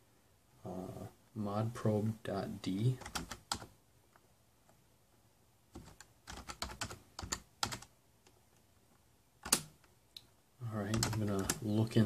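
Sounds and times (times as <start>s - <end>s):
computer keyboard key clicks: 9.4s - 9.7s.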